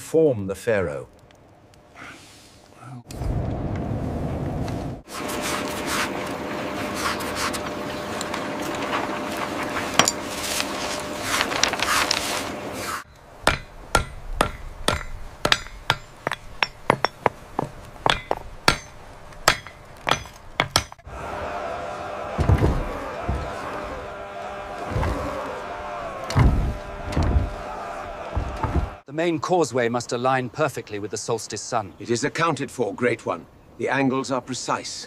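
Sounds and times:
scratchy rustling noise: 4.7s - 6.2s, 6.8s - 13.0s
hammers striking anvils: 13.4s - 21.0s.

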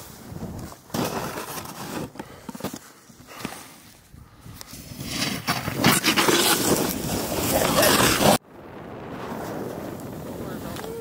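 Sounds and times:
snowboard edge scraping snow: 0.0s - 4.1s, 4.7s - 8.4s.

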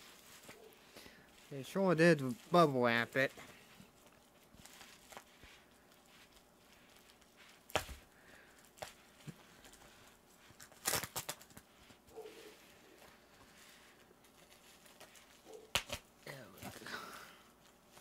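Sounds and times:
bubble-wrap rustling: 0.0s - 18.0s
plastic mailer bag tearing: 8.6s - 11.7s.

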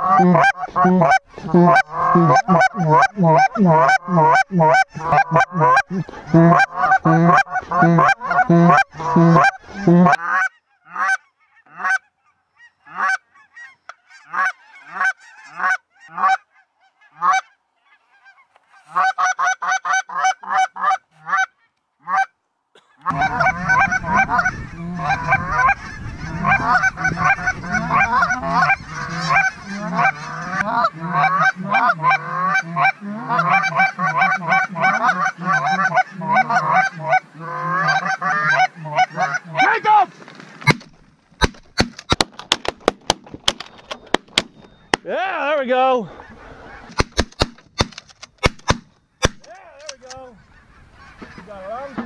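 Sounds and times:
geese honking: 0.0s - 40.8s, 43.8s - 47.1s, 49.2s - 52.0s
shotgun shots: 40.7s - 45.0s, 46.9s - 49.5s.

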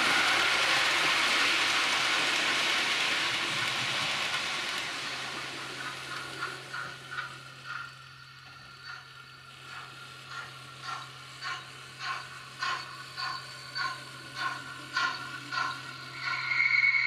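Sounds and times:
model train rushing past: 0.0s - 17.0s.

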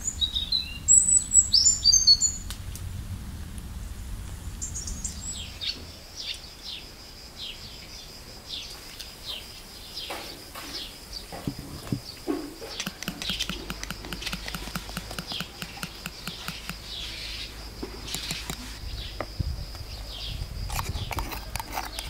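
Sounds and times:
birds chirping: 0.0s - 22.0s
spoon clicking against pot: 12.8s - 16.8s.

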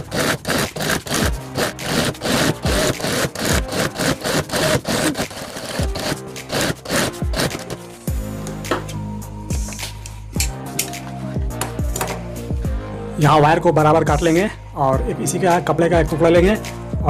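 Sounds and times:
sewing machine stitching: 0.0s - 7.8s
background music with low beat: 0.0s - 17.0s.

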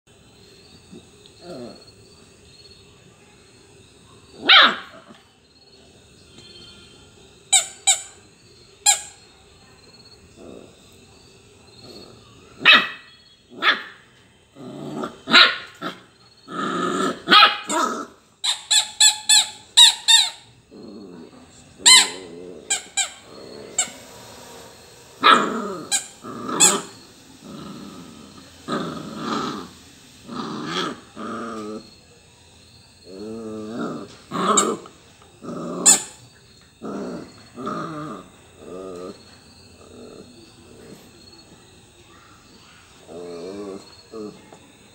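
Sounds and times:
puppy growling: 0.9s - 2.0s, 10.3s - 11.1s, 11.8s - 18.2s, 20.2s - 32.1s, 33.0s - 41.4s, 42.8s - 44.6s
puppy barking and yipping: 12.6s - 14.0s, 15.3s - 16.0s, 17.3s - 17.9s.

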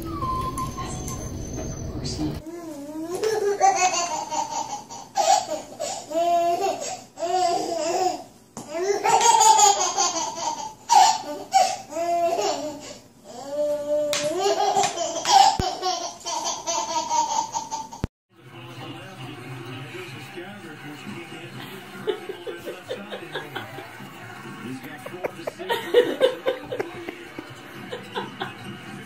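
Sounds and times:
baby laughing and squealing: 3.0s - 18.0s.

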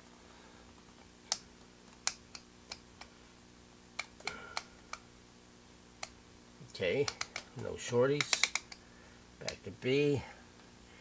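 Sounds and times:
faint electrical hum: 0.0s - 11.0s
selector switch clicks: 7.0s - 8.8s.

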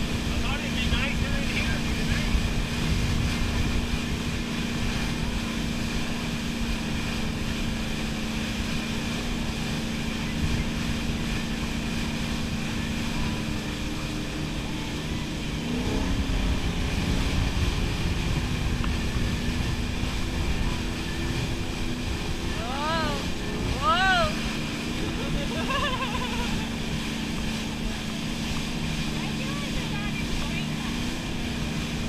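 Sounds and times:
boat engine drone: 0.0s - 32.0s
water rushing: 0.0s - 32.0s
wind buffeting microphone: 0.0s - 32.0s.

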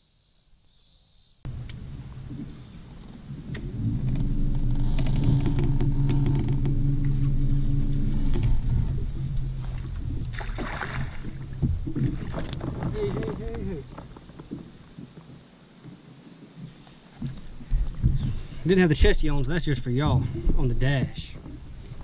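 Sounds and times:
electric trolling motor humming: 1.5s - 13.0s.

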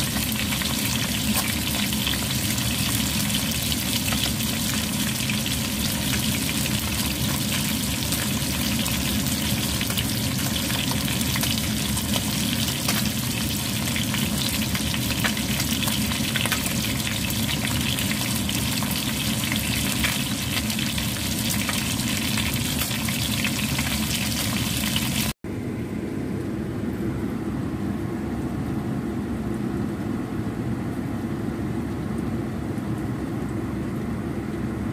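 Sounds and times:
fish sizzling in hot oil: 0.0s - 25.4s
steady low hum: 25.4s - 34.9s.

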